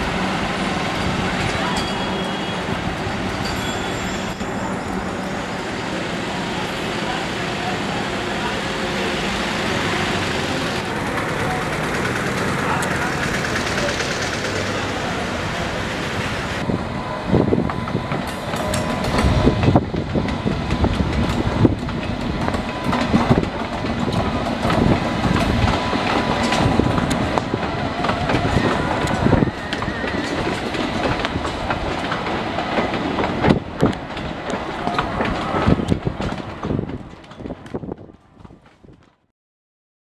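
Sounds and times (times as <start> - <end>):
train wheels clattering over rails: 9.3 - 16.6, 17.7 - 39.0.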